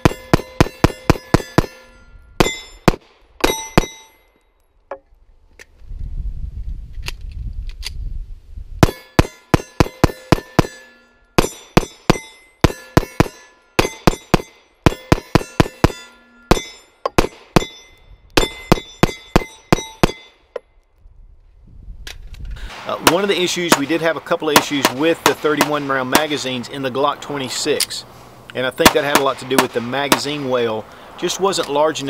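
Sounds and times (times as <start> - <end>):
pistol firing rapidly: 22.7 - 26.6, 28.8 - 30.7.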